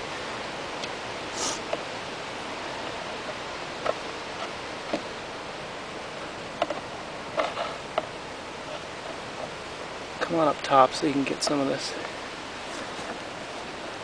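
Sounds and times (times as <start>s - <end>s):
background hiss: 0.0s - 14.0s
hand tool tapping and scraping wood: 2.8s - 5.1s.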